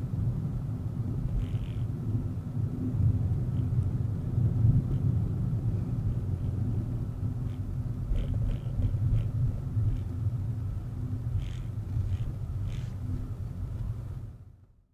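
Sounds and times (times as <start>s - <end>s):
road noise: 0.0s - 14.6s
car engine rumble: 0.0s - 14.7s
faint ticks: 1.3s - 1.9s, 11.3s - 13.0s.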